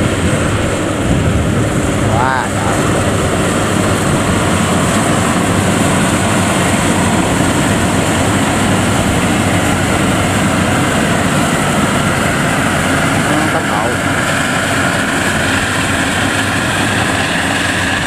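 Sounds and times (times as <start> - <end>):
combine harvester engine drone: 0.0 - 18.0.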